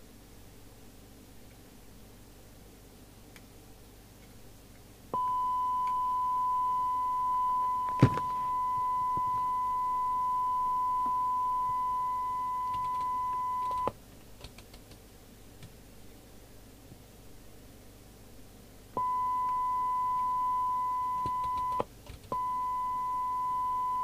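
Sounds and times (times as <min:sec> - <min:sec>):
steady test tone from speaker: 0:05.1 - 0:13.9, 0:19.0 - 0:24.0.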